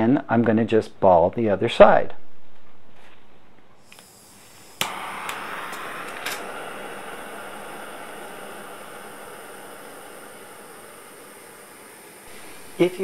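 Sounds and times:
torch flame hissing: 0:03.8 - 0:13.0
torch ignition click: 0:03.8 - 0:13.0.

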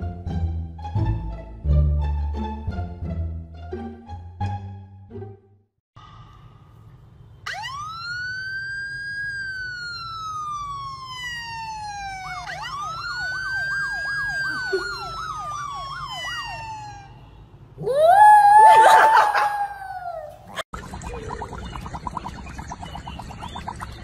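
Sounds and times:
police siren through phone speaker: 0:07.5 - 0:17.2.

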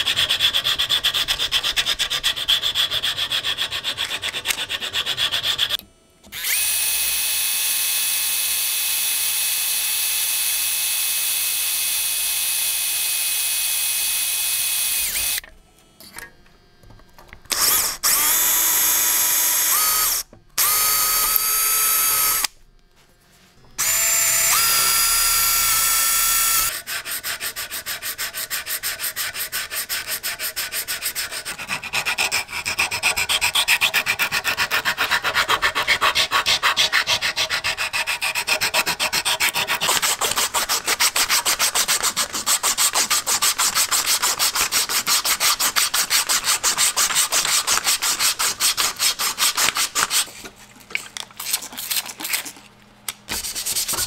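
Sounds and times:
hand-sanding wood: 0:00.0 - 0:05.8, 0:25.4 - 0:50.4, 0:53.3 - 0:54.0
power drill boring wood: 0:05.4 - 0:15.4, 0:17.5 - 0:22.5, 0:23.8 - 0:26.8.

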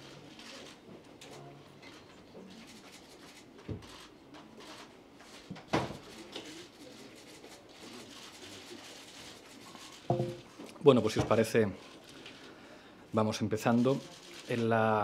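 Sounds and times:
knocks and clicks at lectern: 0:10.1 - 0:10.5.

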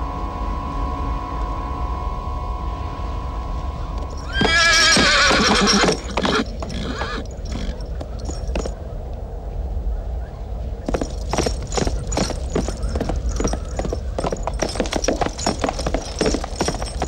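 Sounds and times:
low steady rumble: 0:00.0 - 0:17.0
hoofbeats in dust: 0:04.0 - 0:08.8, 0:10.7 - 0:17.0
horse whinnying: 0:04.2 - 0:08.7.

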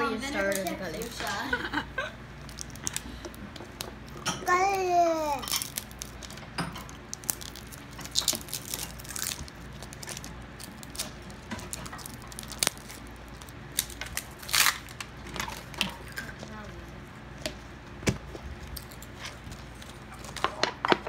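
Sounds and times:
plastic wrapper crinkling: 0:02.4 - 0:16.8.

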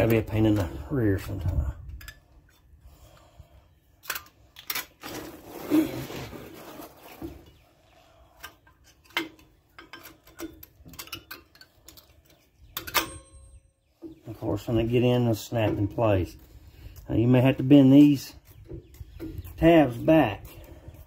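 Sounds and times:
metal clicks: 0:04.0 - 0:05.0, 0:08.4 - 0:13.4.

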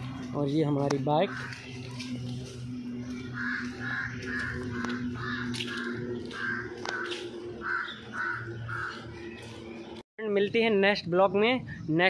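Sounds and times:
steady low hum: 0:00.0 - 0:12.0
crow cawing: 0:01.2 - 0:09.4.

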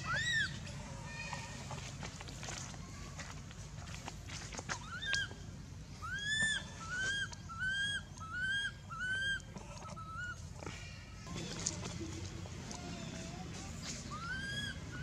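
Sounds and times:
infant monkey crying: 0:00.0 - 0:00.6, 0:04.8 - 0:05.3, 0:06.0 - 0:10.5, 0:14.1 - 0:15.0.

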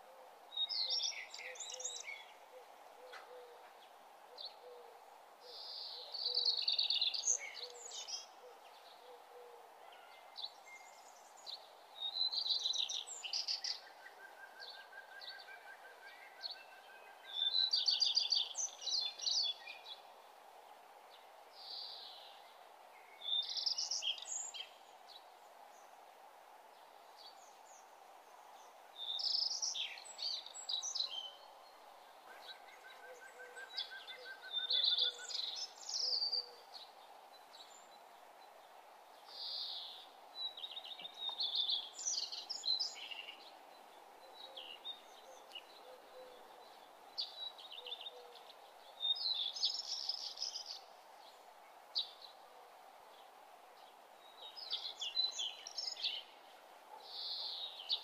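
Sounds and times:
faint hiss: 0:00.0 - 0:58.0
songbird singing: 0:00.0 - 0:58.0.

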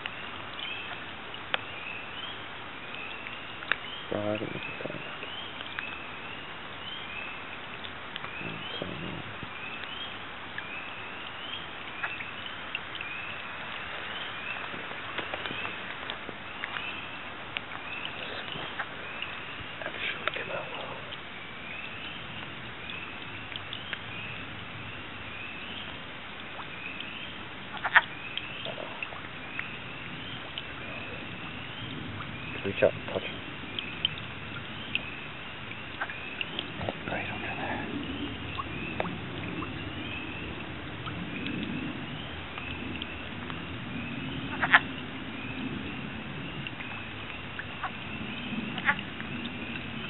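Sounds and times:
frogs calling: 0:00.0 - 0:50.0.

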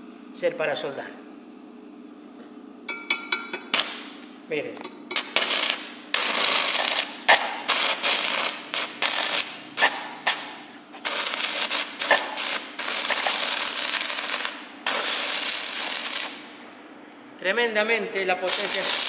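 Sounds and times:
welding arc crackling: 0:03.7 - 0:04.4, 0:05.1 - 0:16.6, 0:18.4 - 0:19.0.

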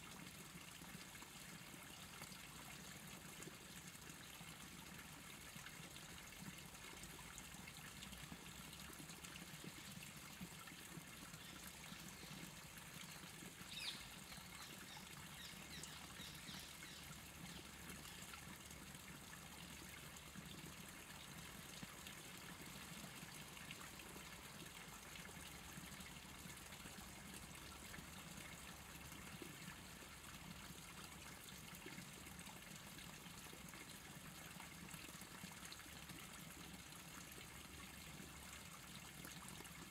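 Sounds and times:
water trickling: 0:00.0 - 0:39.9.

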